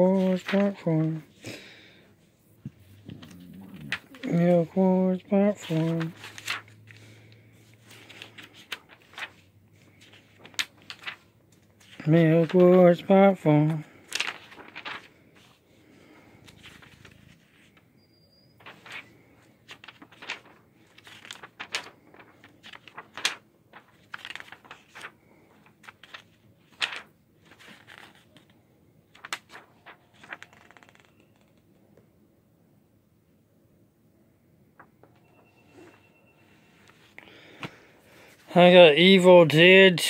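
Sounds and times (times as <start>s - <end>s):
comic book pages turning: 0.0s - 1.7s, 2.6s - 15.6s, 16.2s - 17.8s, 18.6s - 31.7s.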